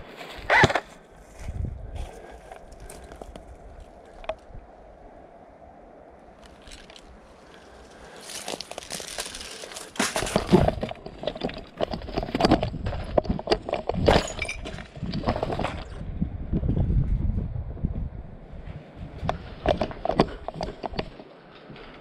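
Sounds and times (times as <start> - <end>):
gear rustling: 6.4 - 16.0
footsteps crunching on dry leaves: 6.5 - 10.6.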